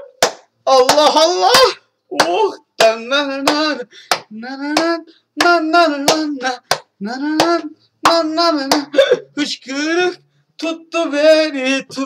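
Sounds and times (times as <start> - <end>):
hand claps: 0.2 - 8.9
man singing held notes: 0.6 - 12.0.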